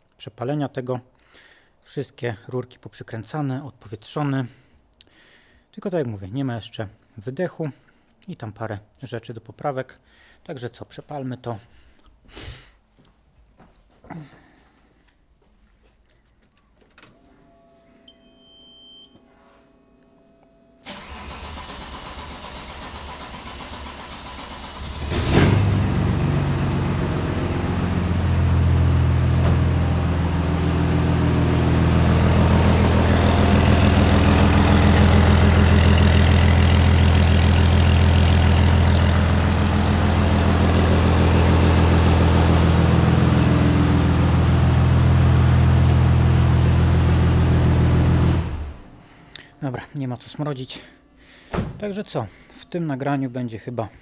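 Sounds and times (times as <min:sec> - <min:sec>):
short electronic beep: 0:17.5 - 0:19.2
engine starter cranking: 0:20.8 - 0:25.9
loud diesel engine idling: 0:27.4 - 0:45.1.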